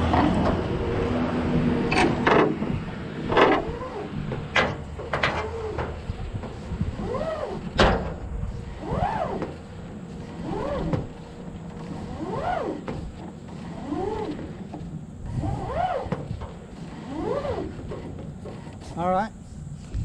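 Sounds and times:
hydraulic hose squealing: 3.2 - 7.8, 11.9 - 19.0.

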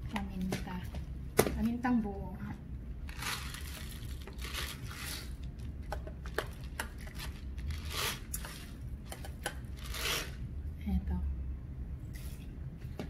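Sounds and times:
plastic packaging crinkling: 3.1 - 8.8, 9.7 - 10.4
containers clicking and tapping: 5.8 - 7.2, 8.4 - 9.7.

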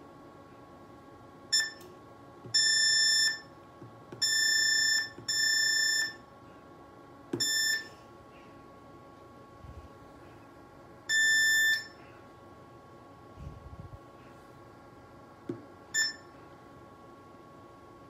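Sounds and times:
faint electronic whine: 0.0 - 18.0
electronic beeps: 7.4 - 8.0, 11.1 - 12.0, 16.0 - 16.3.

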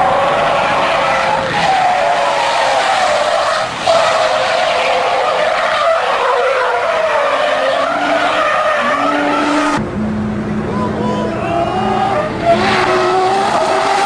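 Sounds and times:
car tyres squealing: 0.0 - 9.8, 10.7 - 14.0
steady low hum: 9.8 - 12.6.

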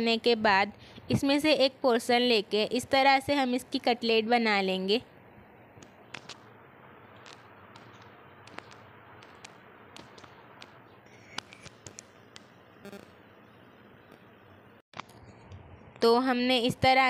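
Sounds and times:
hands patting meat mixture: 7.2 - 10.8.

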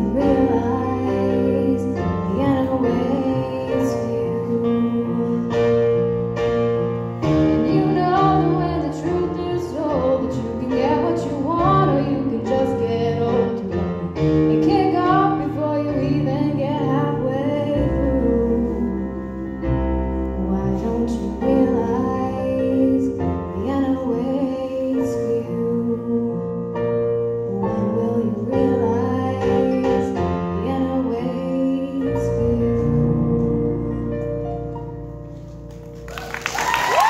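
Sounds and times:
woman singing: 0.0 - 6.1, 7.6 - 19.6, 20.2 - 34.4
electric keyboard piano: 0.0 - 36.4
audience cheering and whistling: 36.1 - 37.0.

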